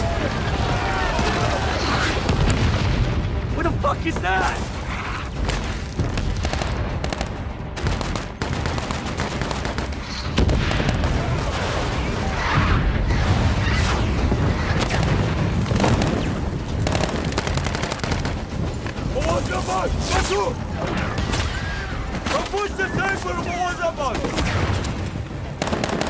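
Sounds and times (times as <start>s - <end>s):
explosions: 0.0s - 3.4s, 5.4s - 19.3s
rifle and machine-gun fire: 6.0s - 12.3s, 13.2s - 22.5s, 24.2s - 26.0s.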